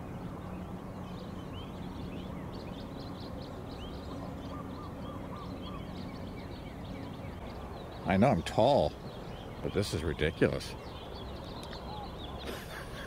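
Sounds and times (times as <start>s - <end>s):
small birds chirping: 0.0s - 13.0s
steady low drone: 0.0s - 13.0s
short bird calls: 4.1s - 6.1s, 10.6s - 13.0s.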